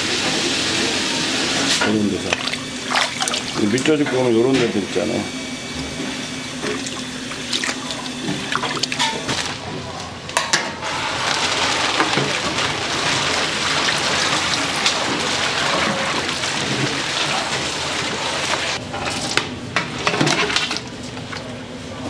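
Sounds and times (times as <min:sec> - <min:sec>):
tap water splashing in a sink: 0:01.8 - 0:04.8, 0:06.6 - 0:09.5.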